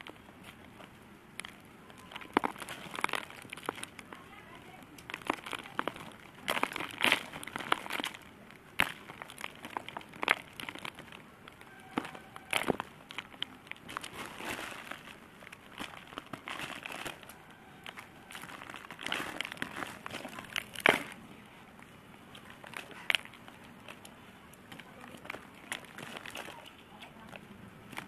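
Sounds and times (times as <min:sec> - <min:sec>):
chalky lumps crumbling: 0:00.0 - 0:28.0
sharp crack: 0:04.9 - 0:21.2.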